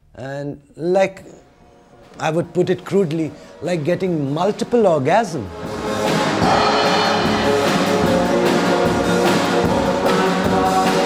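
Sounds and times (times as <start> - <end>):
rock and roll band music: 5.5 - 11.0.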